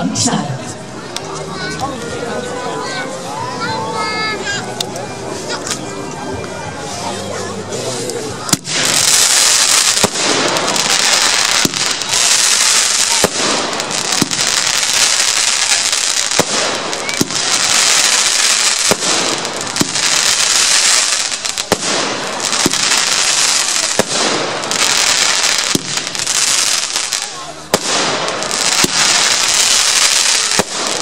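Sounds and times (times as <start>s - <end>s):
firework crackling hiss: 7.6s - 31.0s
firework bangs: 8.5s - 31.0s.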